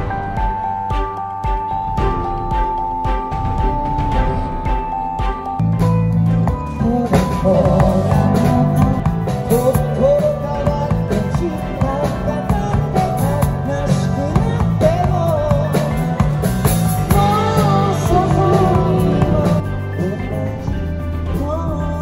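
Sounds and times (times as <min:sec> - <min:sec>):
live rock band playing: 0:01.7 - 0:21.6
person singing: 0:06.6 - 0:22.0.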